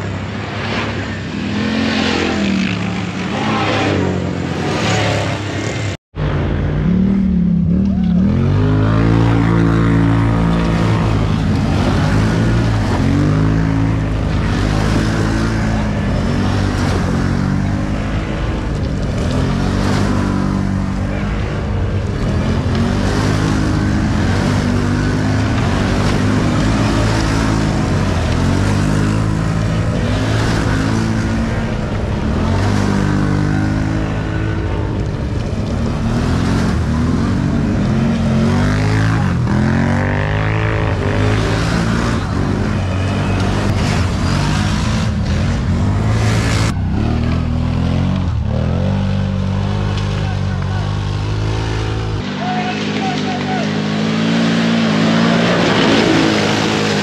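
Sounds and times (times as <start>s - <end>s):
atv engine revving under load: 7.9s - 52.3s.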